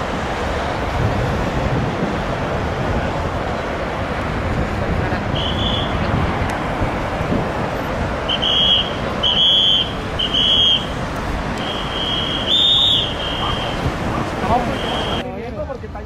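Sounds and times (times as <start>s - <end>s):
road traffic: 0.0s - 16.0s
high-pitched whistle blasts: 8.3s - 10.9s, 11.6s - 13.8s.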